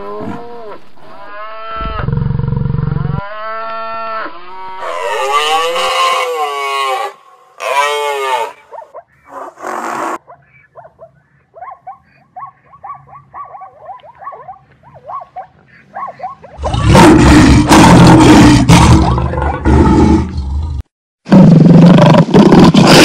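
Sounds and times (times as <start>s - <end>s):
high zebra yelps: 4.8s - 16.8s
lion roar: 16.6s - 23.0s.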